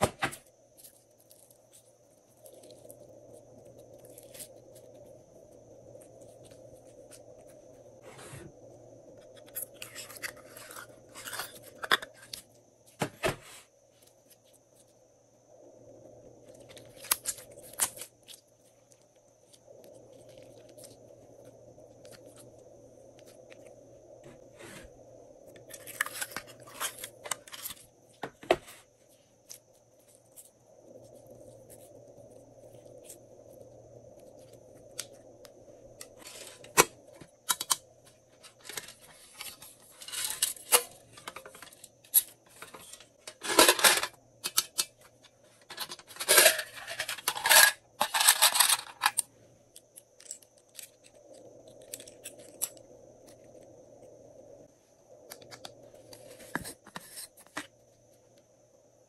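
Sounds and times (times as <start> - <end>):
plastic pieces clicking and rattling: 45.7 - 51.1
plastic containers handled: 55.3 - 57.8.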